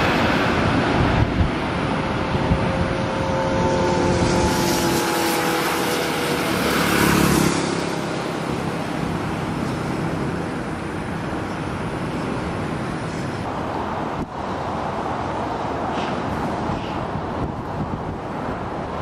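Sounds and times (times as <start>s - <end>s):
jet airliner engines roaring: 0.0s - 19.0s.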